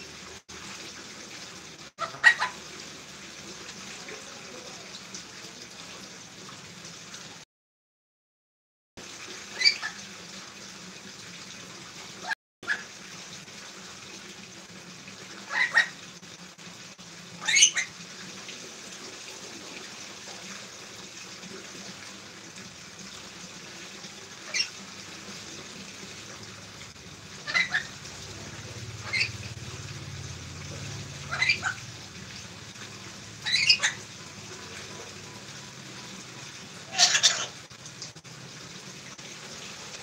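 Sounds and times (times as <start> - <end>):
parrot shrill calls: 9.6 - 10.0, 15.5 - 15.9, 17.4 - 17.9, 24.4 - 24.7, 27.4 - 28.0, 29.0 - 29.4, 31.3 - 31.8, 33.4 - 34.0, 36.9 - 37.6.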